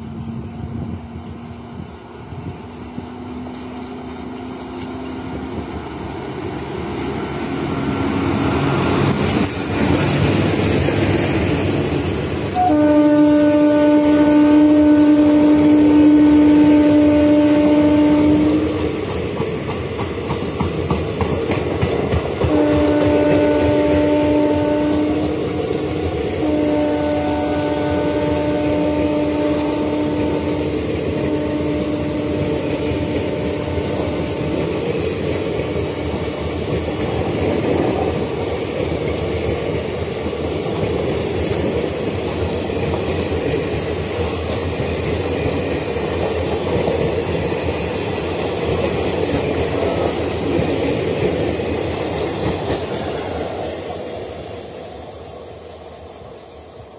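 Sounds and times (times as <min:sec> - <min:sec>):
train wheels clattering on rails: 0:00.8 - 0:13.0, 0:17.6 - 0:26.7, 0:30.1 - 0:54.6
train horn: 0:12.5 - 0:18.9, 0:22.4 - 0:25.6, 0:26.3 - 0:34.7.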